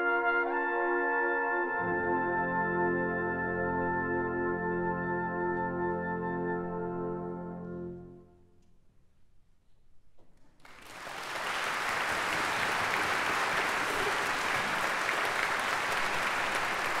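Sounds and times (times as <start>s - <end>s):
audience applause: 10.6s - 17.0s.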